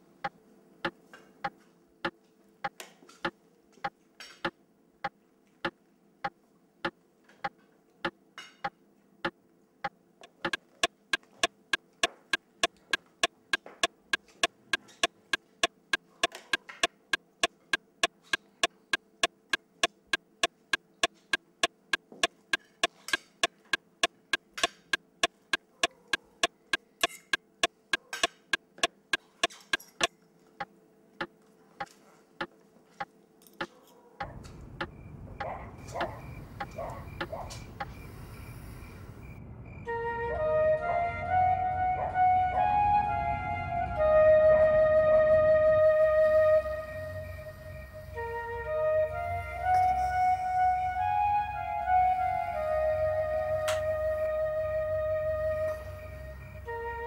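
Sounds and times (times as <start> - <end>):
low steady hum: 41.1 - 57.0.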